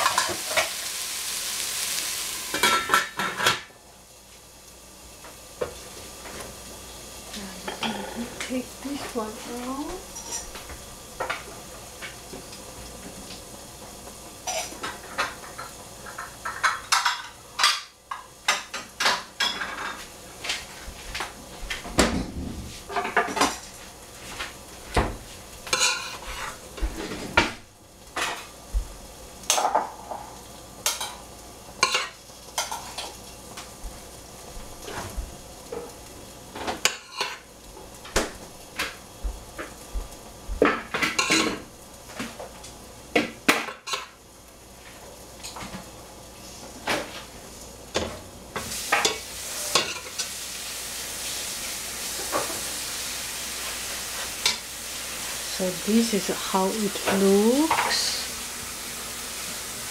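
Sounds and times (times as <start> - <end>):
lidded pan hissing: 0.0 - 59.9
metal kitchenware clattering: 7.7 - 8.3, 10.1 - 10.6, 41.0 - 41.6.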